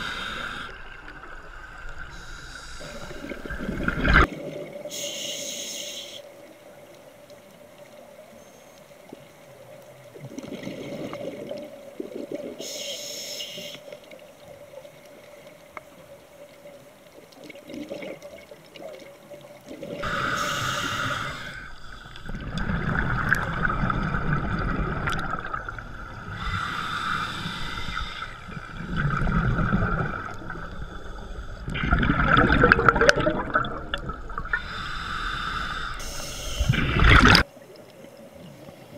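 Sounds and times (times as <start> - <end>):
underwater regulator bubbles: 2.6 - 4.6, 19.7 - 37.4.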